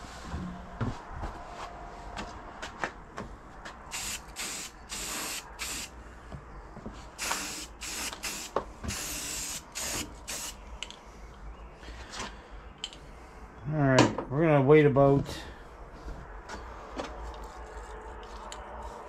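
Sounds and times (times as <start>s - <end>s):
spray paint can hissing: 3.9s - 5.9s, 7.2s - 10.6s.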